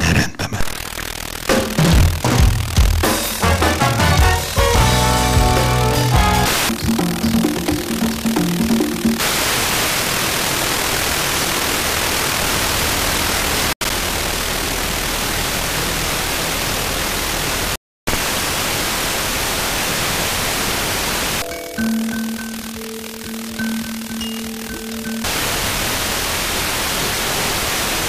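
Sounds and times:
radio static hiss: 0.0 - 5.0, 7.9 - 28.0
radio music: 0.0 - 7.0, 19.6 - 28.0.

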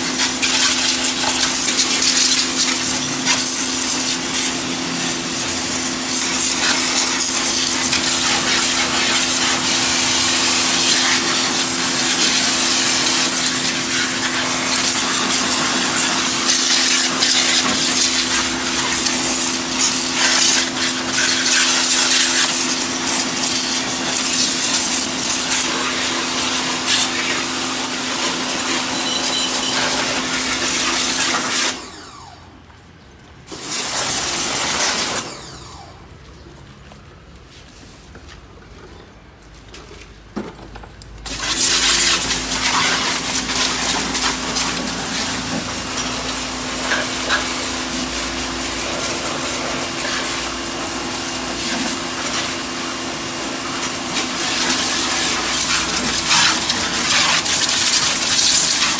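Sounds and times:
pressure washer humming: 0.0 - 32.6, 33.4 - 36.0, 41.2 - 58.9
water jet hissing on deck: 41.3 - 58.9.

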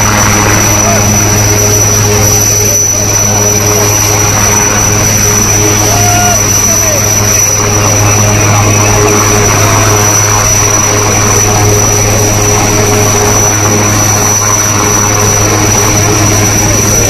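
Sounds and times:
helicopter rotor drone: 0.0 - 17.0
high turbine whine: 0.0 - 17.0.

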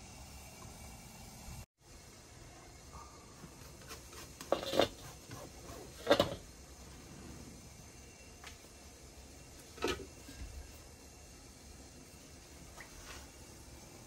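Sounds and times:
kitchen utensils clattering: 5.9 - 6.5
metal pot lid clanking: 6.0 - 6.4.

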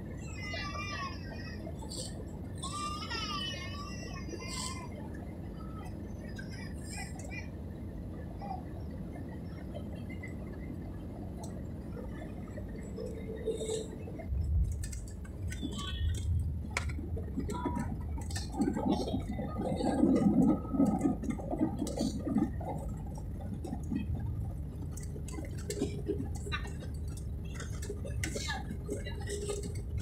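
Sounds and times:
airliner cabin rumble: 0.0 - 30.0.

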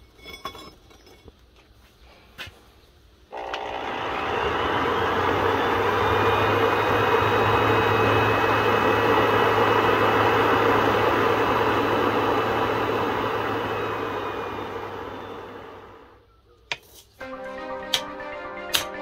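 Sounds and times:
forge fire blower rushing: 3.3 - 16.1.

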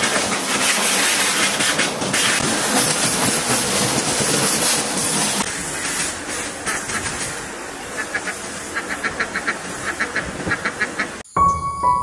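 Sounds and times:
water jet hissing on boards: 0.0 - 10.9
ducks quacking: 7.9 - 11.2.

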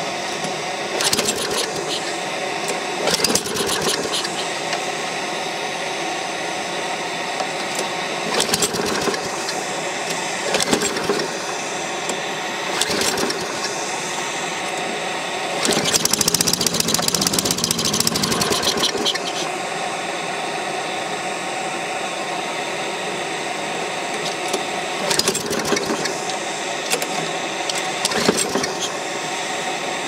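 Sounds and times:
lawn mower engine turning over: 0.2 - 4.9, 7.4 - 19.6, 24.2 - 29.0.

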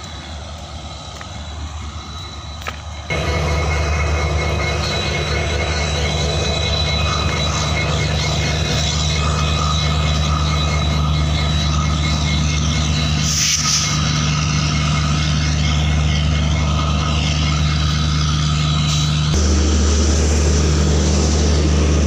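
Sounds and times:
diesel locomotive engine idling: 0.0 - 22.0
air hiss: 13.1 - 14.8.

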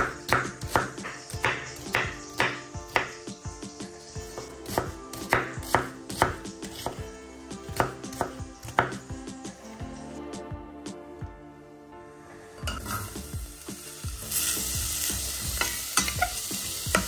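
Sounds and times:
knife chopping on cutting board: 0.0 - 3.2, 4.2 - 7.0, 7.7 - 9.1.

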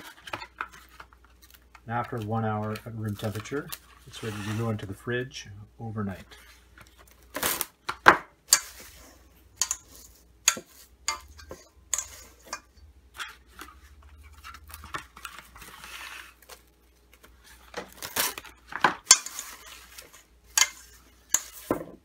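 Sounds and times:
plastic cling wrap crackling: 13.4 - 20.3.

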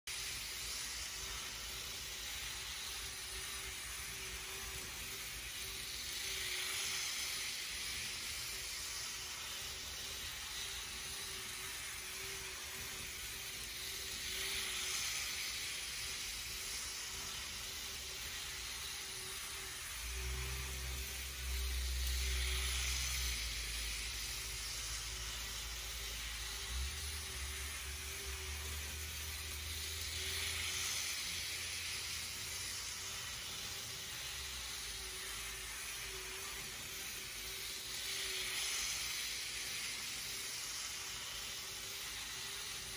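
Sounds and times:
model train running on rails: 0.1 - 42.9.

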